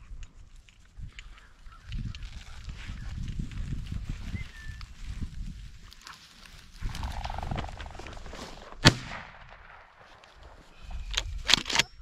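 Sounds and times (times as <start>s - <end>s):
cluster of sharp cracks: 7.0s - 10.6s
shotgun shot with echo: 8.8s - 10.0s.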